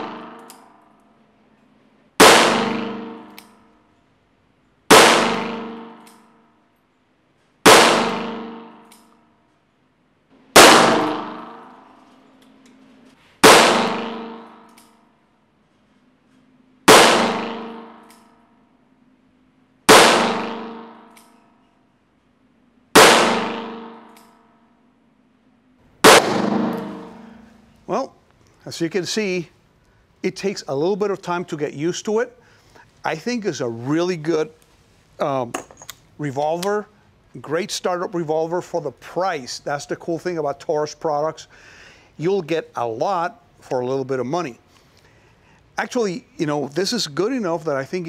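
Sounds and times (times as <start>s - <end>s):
revolver shots echoing indoors: 0.0s - 4.0s, 4.9s - 9.7s, 10.3s - 27.8s.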